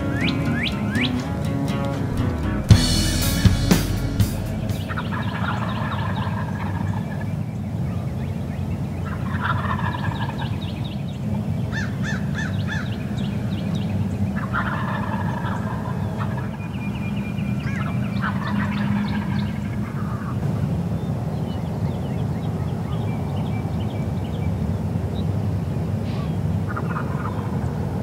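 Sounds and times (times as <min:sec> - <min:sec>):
small birds calling: 0:00.0 - 0:01.9, 0:02.8 - 0:25.4, 0:26.0 - 0:28.0
wild turkey gobbling: 0:04.8 - 0:07.2, 0:09.2 - 0:10.6, 0:14.4 - 0:16.7, 0:17.6 - 0:20.3, 0:26.1 - 0:27.7.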